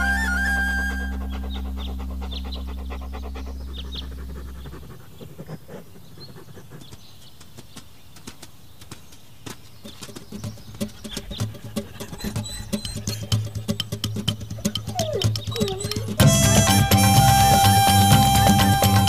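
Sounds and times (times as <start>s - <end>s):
soft music: 0.0s - 4.4s, 14.2s - 19.0s
bird chirps: 0.0s - 19.0s.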